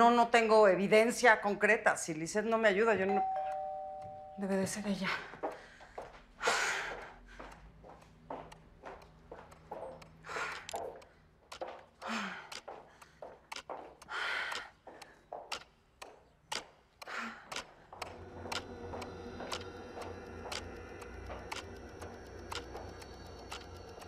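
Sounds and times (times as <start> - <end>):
low drone and ticking underscore: 3.2 - 24.0
woman's footsteps on hard floor: 5.0 - 16.8, 17.7 - 24.0
heeled footsteps on hard floor: 5.2 - 12.0, 12.6 - 14.1
short breaths: 10.2 - 11.3, 12.0 - 13.3, 14.1 - 15.3, 17.0 - 18.0.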